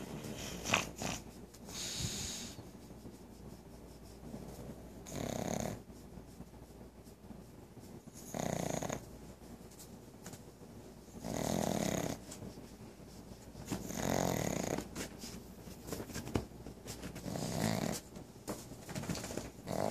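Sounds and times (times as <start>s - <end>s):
dog snoring loudly: 0.6s - 1.2s, 5.0s - 5.8s, 8.3s - 9.0s, 11.2s - 12.2s, 13.9s - 14.8s, 17.2s - 18.0s, 19.6s - 19.9s.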